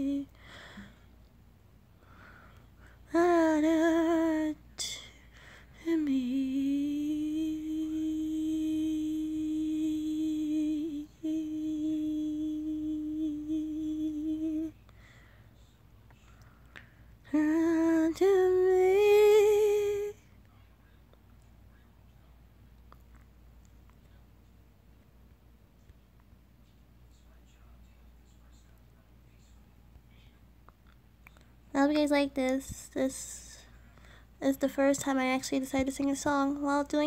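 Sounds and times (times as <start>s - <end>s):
woman humming: 5.8s - 14.8s.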